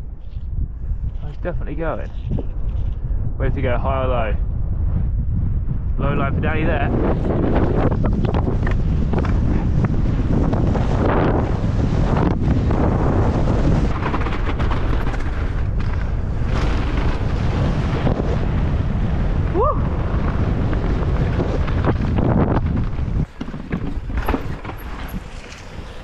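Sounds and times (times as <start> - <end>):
wind buffeting microphone: 0.0 - 26.0
bike rattling and knocking: 12.7 - 17.3, 20.0 - 26.0.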